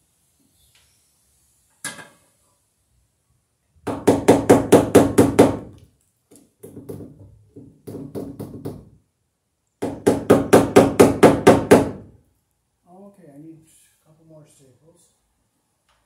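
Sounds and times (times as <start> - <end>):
hammer striking staples into wood: 3.9 - 5.7, 9.8 - 12.1.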